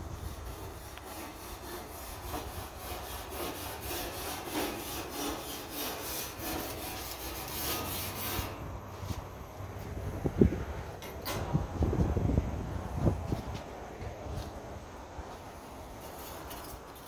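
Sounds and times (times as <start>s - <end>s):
grill brush scraping grates: 0.0s - 9.2s, 15.4s - 17.0s.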